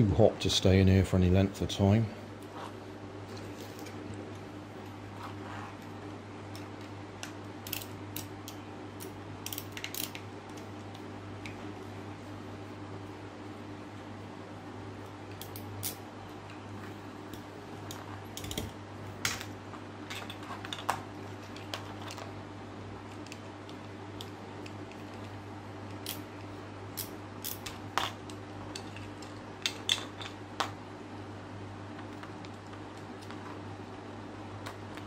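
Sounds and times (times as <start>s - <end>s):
steady low hum: 0.0s - 35.0s
plastic parts clicking and tapping: 6.6s - 10.7s.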